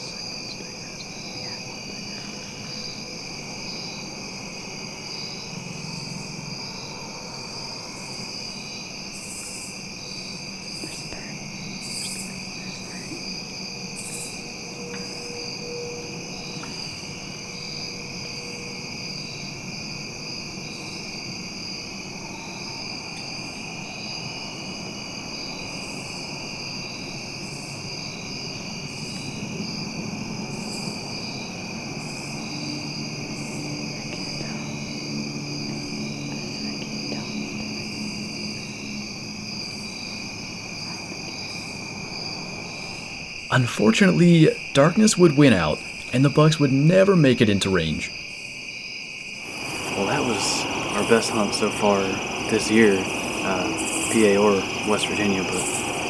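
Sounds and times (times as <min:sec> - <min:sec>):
crickets trilling: 0:00.0 - 0:56.0
rustling hisses: 0:49.4 - 0:56.0.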